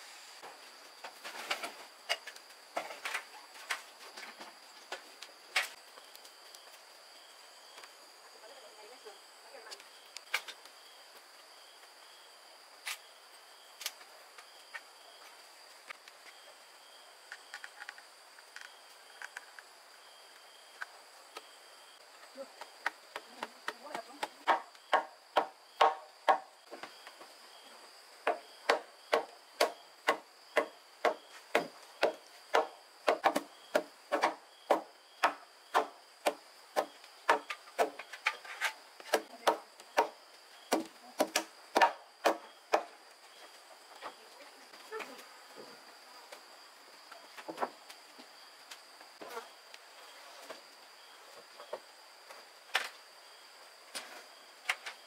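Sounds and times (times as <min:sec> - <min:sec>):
hand tool striking wood: 0:22.8 - 0:26.5, 0:28.2 - 0:43.0.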